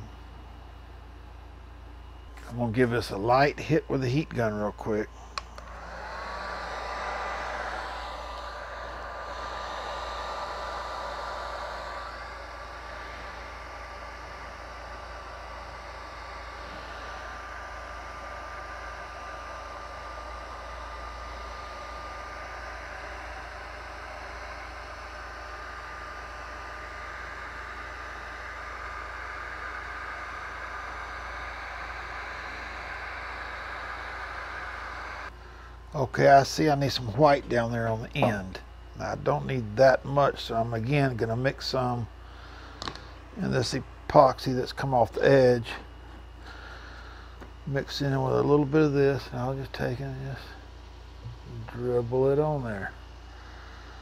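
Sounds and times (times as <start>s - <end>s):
heat gun blowing: 4.3s - 35.9s, 42.2s - 43.8s.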